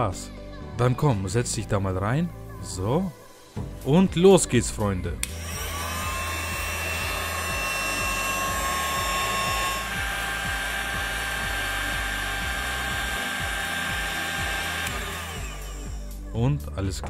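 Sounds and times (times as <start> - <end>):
background music with beat: 2.5 - 17.0
heat gun whining: 5.2 - 16.2.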